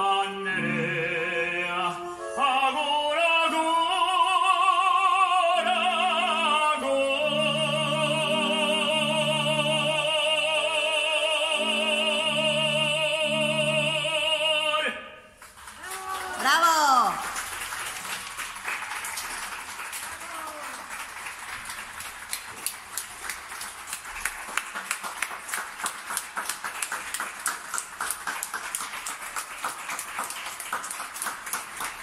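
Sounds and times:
man singing opera: 0:00.0 - 0:15.3.

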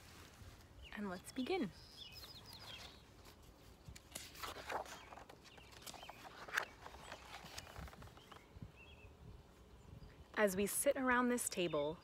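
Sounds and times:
book pages turning: 0:02.2 - 0:08.4.

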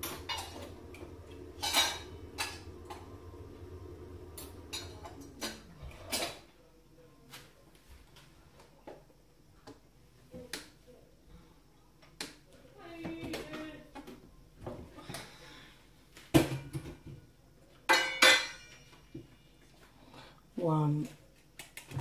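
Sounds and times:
low steady hum: 0:00.0 - 0:07.2.

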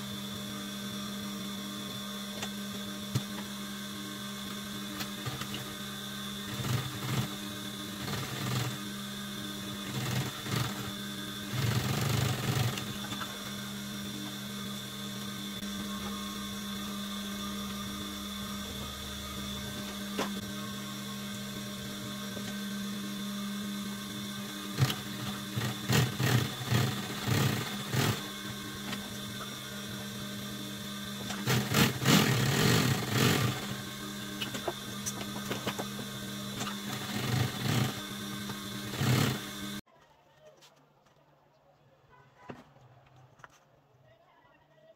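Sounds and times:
sewing machine motor humming: 0:00.0 - 0:39.8
sewing machine stitching: 0:06.5 - 0:08.8, 0:09.7 - 0:13.5, 0:24.7 - 0:29.1, 0:31.2 - 0:33.8, 0:34.4 - 0:39.8.

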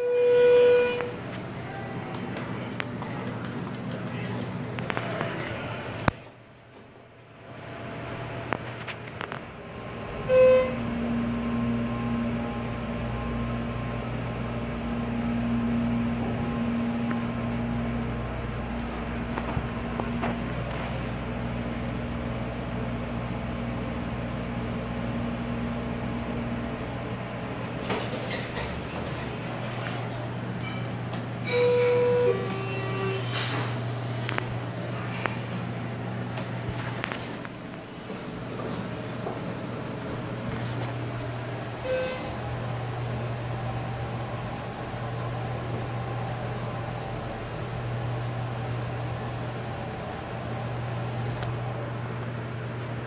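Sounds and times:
brief electronic tone: 0:00.0 - 0:01.2, 0:10.2 - 0:11.0, 0:31.4 - 0:33.4, 0:41.8 - 0:42.4
elevator drive humming: 0:00.0 - 0:53.0
elevator doors clunk and rattle: 0:27.2 - 0:34.4, 0:38.1 - 0:51.5.

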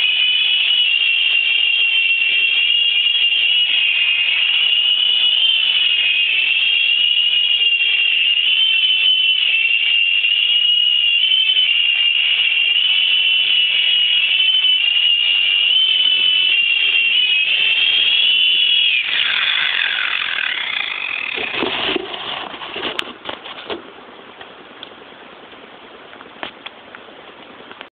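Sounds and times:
electric rotor motor whining: 0:11.6 - 0:21.8.

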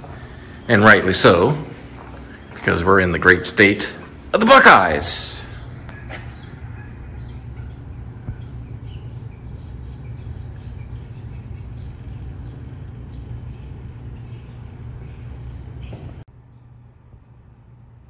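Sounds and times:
low rumble with hiss: 0:00.0 - 0:18.0.

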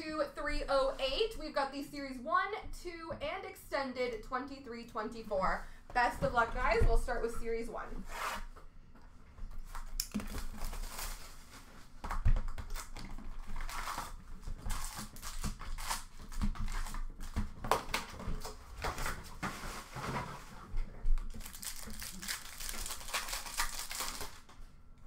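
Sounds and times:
cardboard and wrapper rustling: 0:09.5 - 0:24.5.

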